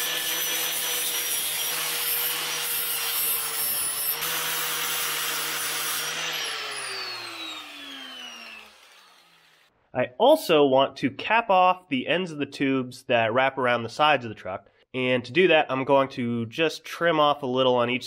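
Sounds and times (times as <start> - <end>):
angle grinder grinding metal: 0.0 - 9.7.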